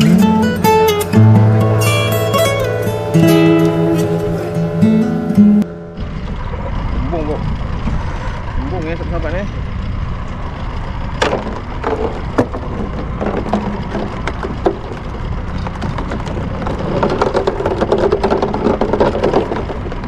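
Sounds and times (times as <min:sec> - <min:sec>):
wind rumble on microphone: 0:03.7 - 0:20.0
fishing gear knocking and clattering: 0:11.2 - 0:20.0.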